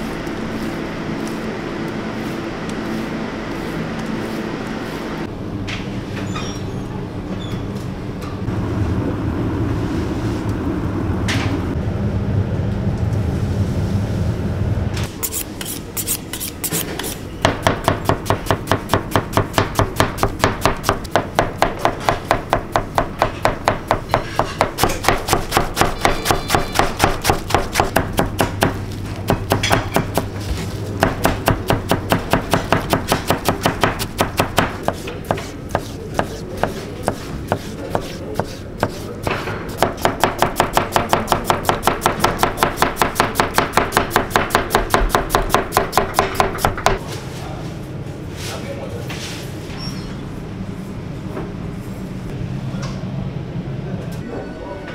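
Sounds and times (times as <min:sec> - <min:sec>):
steady low hum: 0:07.0 - 0:49.0
knife chopping on cutting board: 0:15.2 - 0:30.3, 0:31.0 - 0:47.0.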